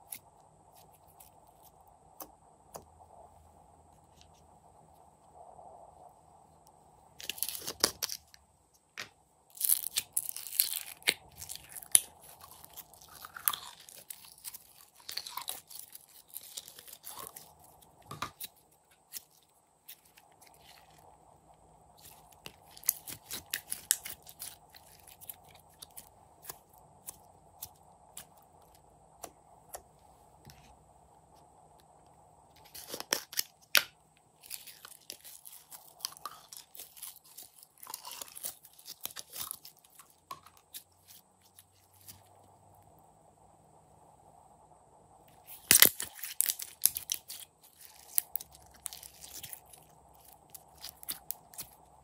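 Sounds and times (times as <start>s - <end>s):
slime crackling and popping: 7.2s - 8.3s, 9.5s - 21.0s, 22.0s - 28.3s, 32.6s - 41.6s, 45.5s - 51.9s.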